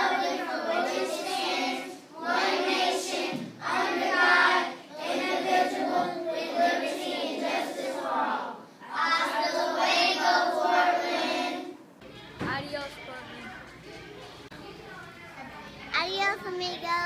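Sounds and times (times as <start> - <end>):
children singing in unison: 0.0 - 11.8.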